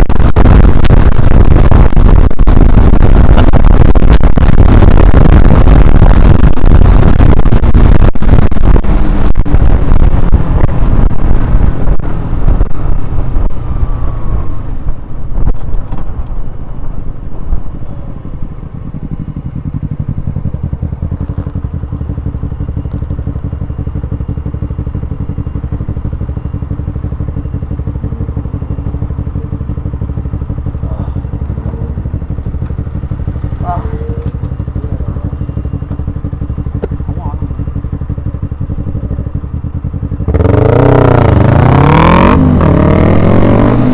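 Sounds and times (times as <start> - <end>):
wind rush over microphone: 0.0 - 19.2
motorcycle engine running: 0.0 - 43.9
motorcycle engine idling: 17.6 - 41.1.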